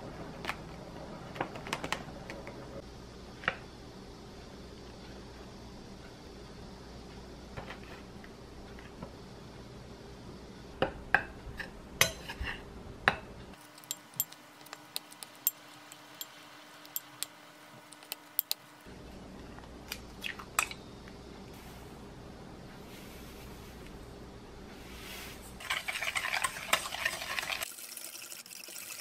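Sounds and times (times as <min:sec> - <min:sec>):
metal spoon tapping glass bowl: 0:13.8 - 0:17.4.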